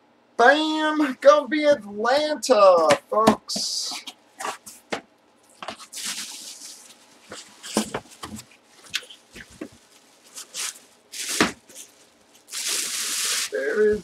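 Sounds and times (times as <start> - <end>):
plastic bag rustling: 4.4 - 14.0.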